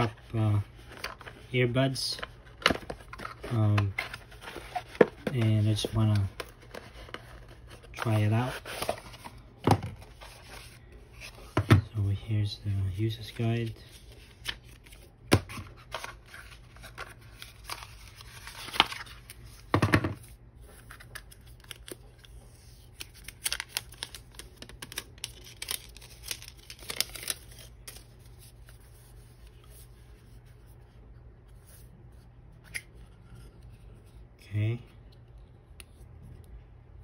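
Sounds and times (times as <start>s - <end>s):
packaging rustling: 0.0s - 11.6s, 13.2s - 19.6s, 20.7s - 29.8s.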